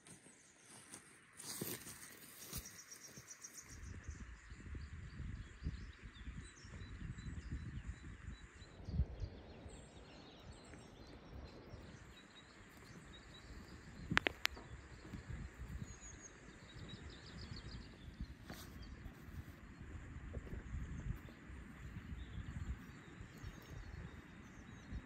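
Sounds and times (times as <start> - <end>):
faint bird chirps: 0.0 - 25.0
wind noise on microphone: 3.6 - 25.0
sharp clicks: 14.0 - 15.2.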